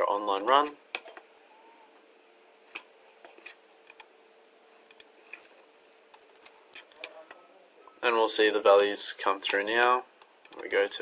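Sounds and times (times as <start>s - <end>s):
computer mouse clicks: 2.7s - 4.1s, 4.9s - 5.5s, 10.2s - 10.7s
keyboard clicks: 4.9s - 5.1s, 10.4s - 10.7s.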